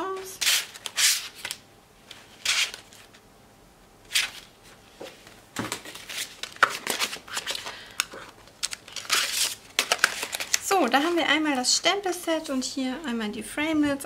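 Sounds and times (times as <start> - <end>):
plastic packs rustling: 4.1 - 11.8.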